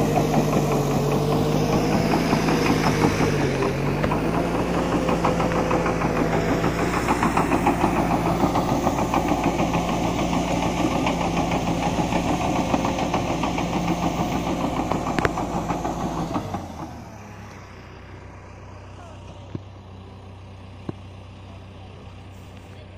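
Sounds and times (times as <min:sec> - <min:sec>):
bulldozer engine and tracks clattering: 0:00.0 - 0:22.9.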